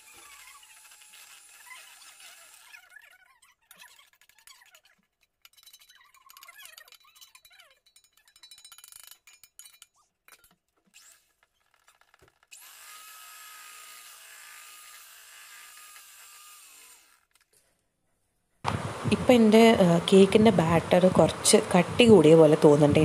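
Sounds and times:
electric hand mixer whining: 0.0s - 2.8s, 12.6s - 17.2s
faint scraping and clinks: 3.2s - 12.4s.

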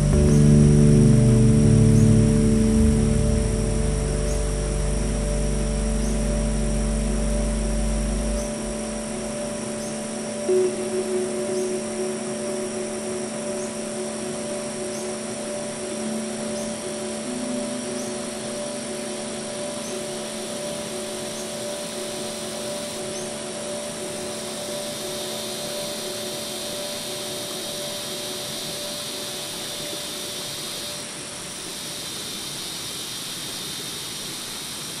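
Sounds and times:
low droning hum: 0.0s - 24.2s
faint high chirps: 0.0s - 32.6s
shrill insect drone: 0.0s - 35.0s.

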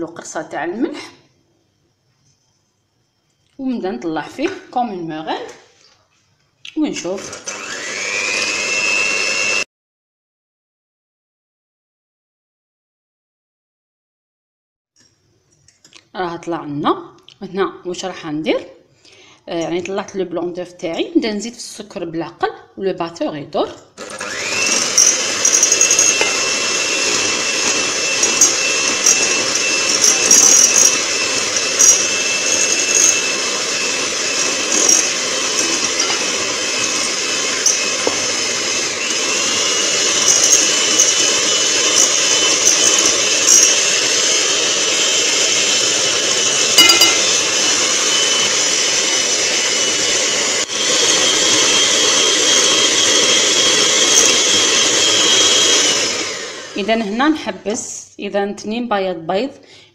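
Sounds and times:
electric hand mixer whining: 7.1s - 9.7s, 24.0s - 57.2s
beaters clattering against bowl: 24.8s - 33.2s, 34.4s - 38.3s, 40.1s - 43.9s, 46.7s - 47.5s.

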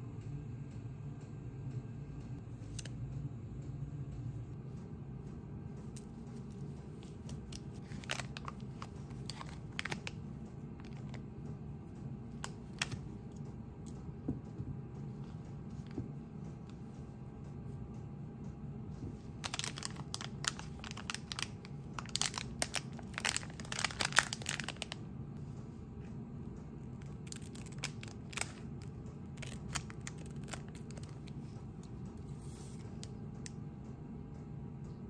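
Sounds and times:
plastic bag crinkling: 7.3s - 10.2s, 19.4s - 25.0s, 27.1s - 31.3s
scissors cutting plastic bag: 7.3s - 10.2s, 19.4s - 24.9s, 29.2s - 31.2s.

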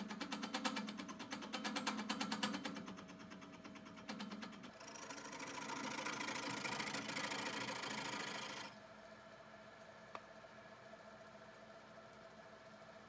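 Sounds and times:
gouge ticking on spinning wood: 0.1s - 8.7s
lathe running: 4.1s - 8.8s.

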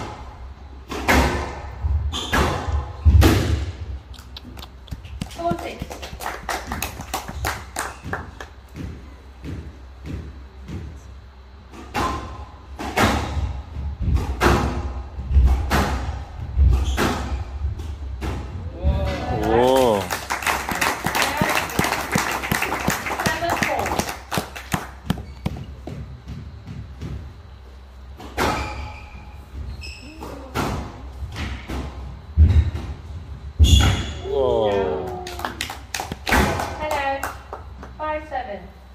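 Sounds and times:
ball smacking walls: 0.8s - 4.0s, 11.7s - 19.6s, 20.3s - 34.3s, 36.0s - 36.9s
heavy thud: 1.1s - 3.9s
shoes squeaking on court floor: 25.0s - 27.5s, 28.3s - 30.5s.

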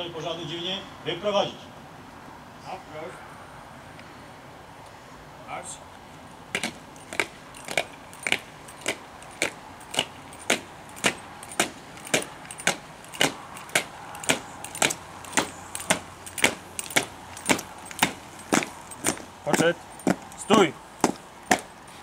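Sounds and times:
boots marching on asphalt: 6.5s - 22.0s.

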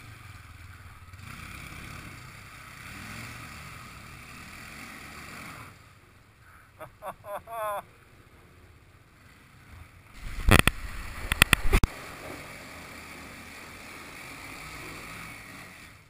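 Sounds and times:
steady rushing hiss: 10.0s - 16.0s.

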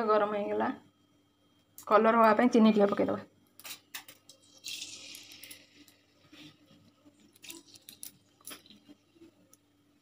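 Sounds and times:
sugar sizzling in hot oil: 3.6s - 9.6s
small crackles and clicks: 7.1s - 9.7s.

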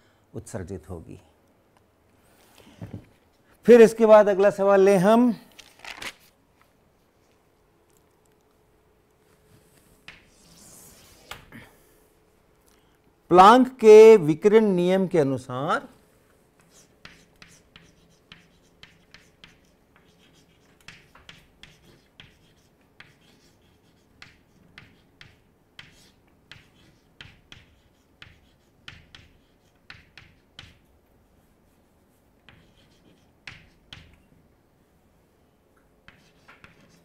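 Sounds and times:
chalk tapping and scraping: 9.4s - 11.5s, 16.4s - 34.2s, 36.0s - 37.0s.

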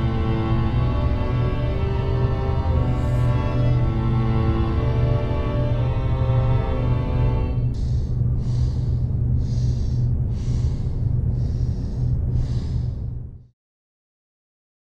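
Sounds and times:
deep low rumble: 0.0s - 13.5s
woman breathing quickly: 6.9s - 13.5s.

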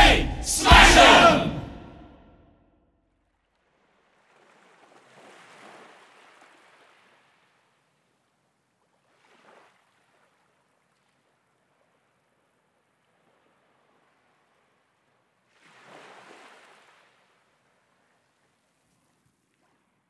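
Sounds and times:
faint sea surf: 0.0s - 1.9s.

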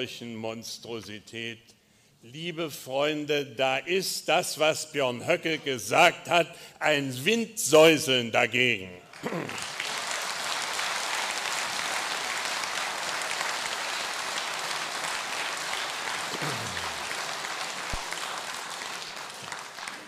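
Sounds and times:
audience applauding: 9.1s - 20.0s.

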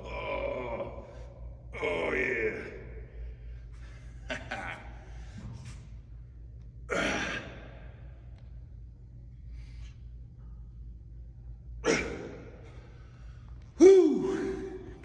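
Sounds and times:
steady low hum: 0.0s - 15.0s
man breathing heavily: 3.0s - 11.0s, 11.6s - 15.0s.

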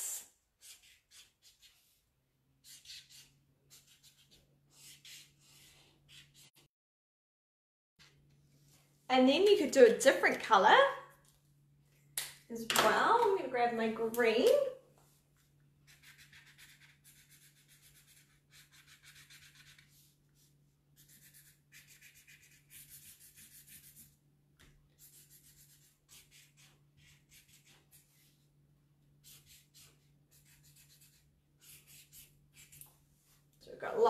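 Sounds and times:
marker scratching on paper: 0.6s - 1.9s, 2.6s - 6.7s, 15.8s - 24.2s, 24.9s - 28.4s, 29.2s - 32.9s.

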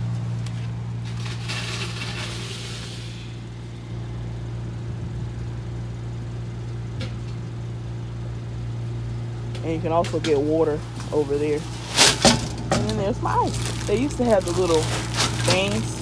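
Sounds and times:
ice rushing and rattling: 13.2s - 16.0s.

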